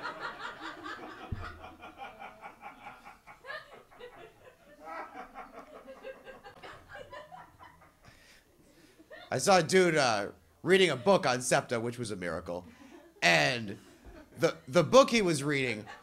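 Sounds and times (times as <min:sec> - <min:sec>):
audience laughing: 0:00.0 - 0:08.1.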